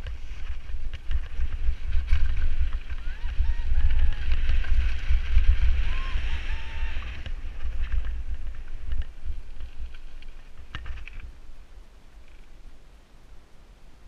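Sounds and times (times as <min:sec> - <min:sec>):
bike clicks and rattles: 0:00.0 - 0:05.8, 0:07.2 - 0:11.3
bike tyres crunching on grit: 0:00.0 - 0:11.3
wind buffeting microphone: 0:00.0 - 0:11.7.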